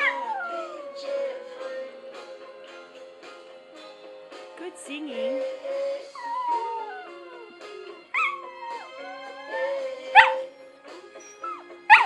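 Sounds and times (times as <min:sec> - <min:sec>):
dog yelping: 0:00.0 - 0:00.8, 0:08.2 - 0:10.5, 0:11.3 - 0:12.0
dog howling: 0:00.0 - 0:01.6, 0:06.2 - 0:07.5, 0:08.2 - 0:10.5
music playing: 0:00.0 - 0:12.0.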